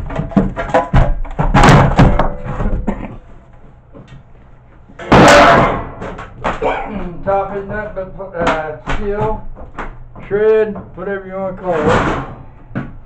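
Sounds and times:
plastic and metal casing knocking: 0.0s - 3.1s.

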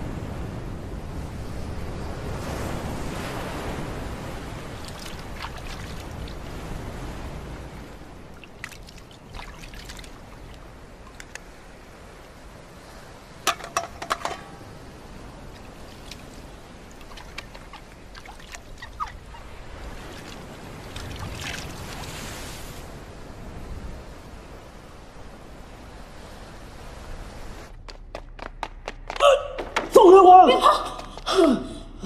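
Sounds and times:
faint surf: 0.0s - 32.0s
water splashing and trickling: 4.1s - 22.9s.

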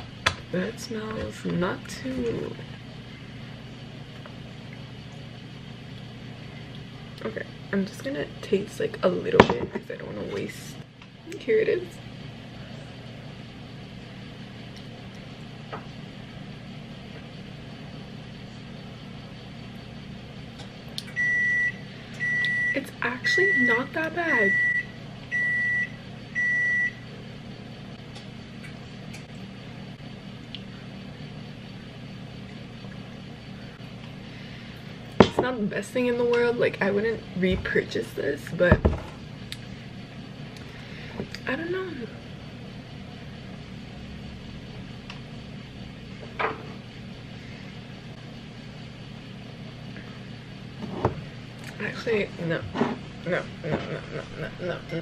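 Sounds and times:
kitchen timer beeping: 21.2s - 27.0s.

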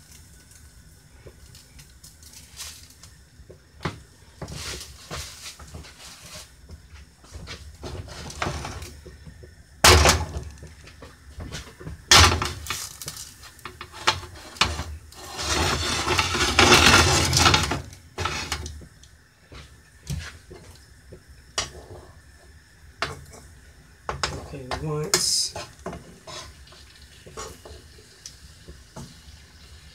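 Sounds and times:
pots and pans clanking: 7.4s - 9.1s, 9.8s - 10.8s, 11.4s - 18.8s, 21.6s - 22.1s, 23.0s - 23.5s, 24.1s - 28.0s
loud hissing: 12.1s - 29.9s.

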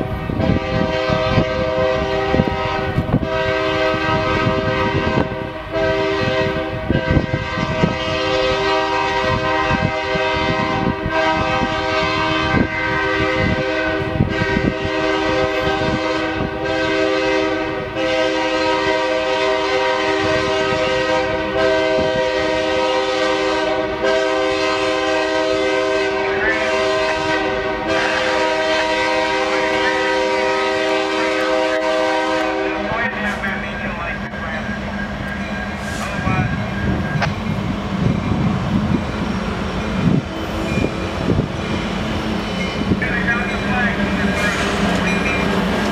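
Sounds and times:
locomotive air horn blast: 0.4s - 34.2s.

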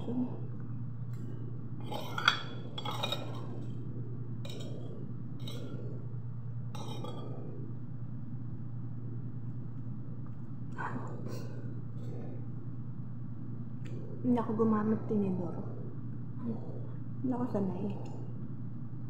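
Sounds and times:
steady low hum: 0.0s - 19.0s
spoon scraping ceramic plate: 1.8s - 3.4s.

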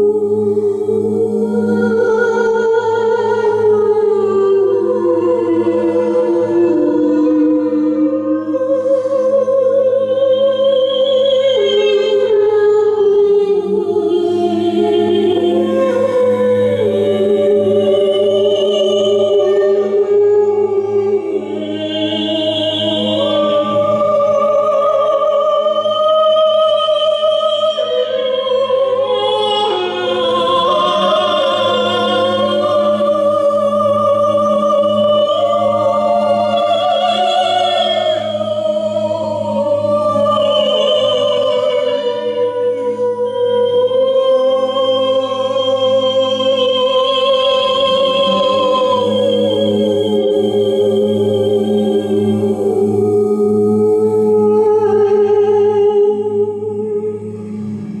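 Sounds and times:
woman singing: 0.0s - 57.4s
low drone: 28.0s - 58.0s.

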